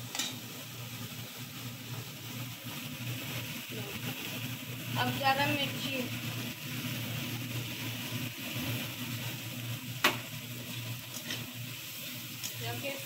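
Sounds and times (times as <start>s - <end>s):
vegetables sizzling in hot oil: 0.0s - 13.0s
spatula scraping pan: 11.1s - 12.5s.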